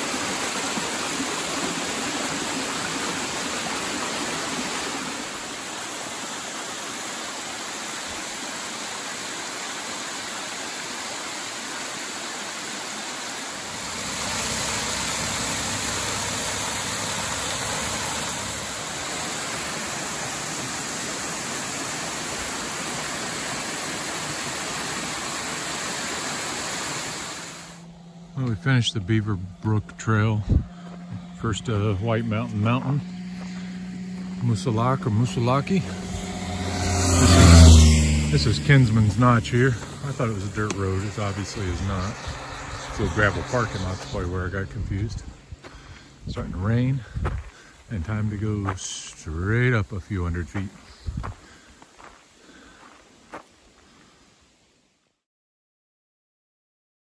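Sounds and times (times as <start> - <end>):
waterfall pouring over rocks: 0.0 - 27.8.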